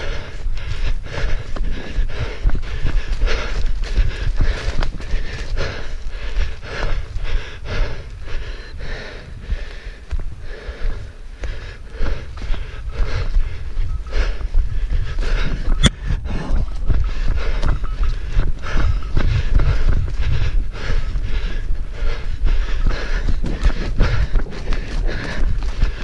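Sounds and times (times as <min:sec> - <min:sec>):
heavy rhythmic breathing: 0:00.0 - 0:26.0
low rumble on microphone: 0:00.0 - 0:26.0.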